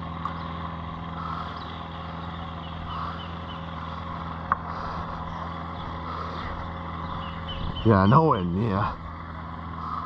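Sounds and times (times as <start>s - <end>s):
distant motor hum: 0.0s - 10.0s.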